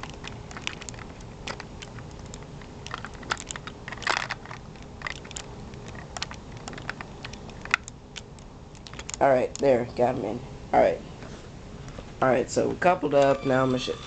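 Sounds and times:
plastic parts clicking and rattling: 0.0s - 9.7s.

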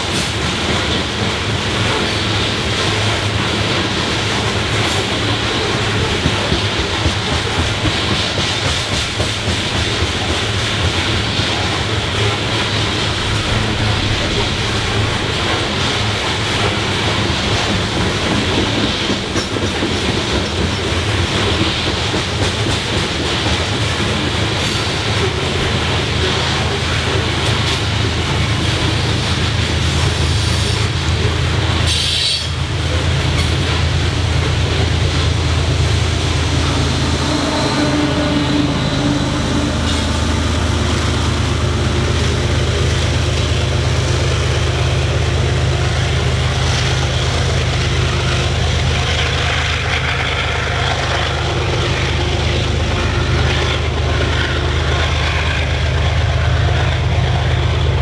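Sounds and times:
locomotive engine droning: 0.0s - 19.6s, 20.4s - 58.0s
freight cars rumbling past: 12.9s - 17.9s, 34.7s - 58.0s
high screech: 36.5s - 40.6s.

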